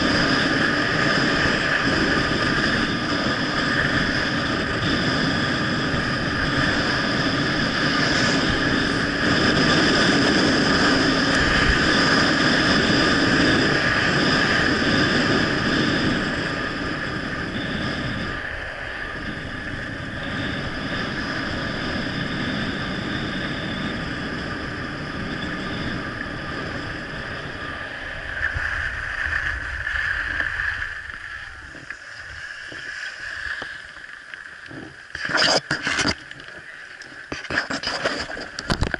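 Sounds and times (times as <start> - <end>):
wind rushing over camera: 0.0 - 38.9.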